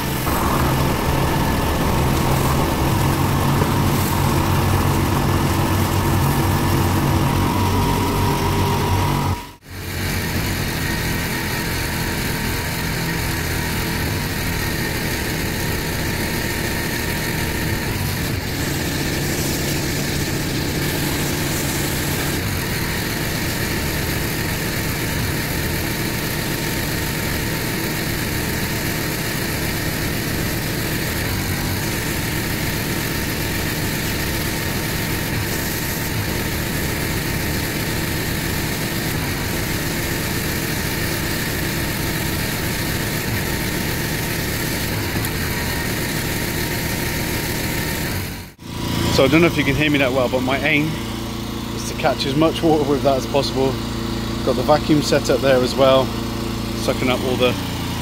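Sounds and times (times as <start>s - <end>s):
pressure washer running: 0.0s - 58.0s.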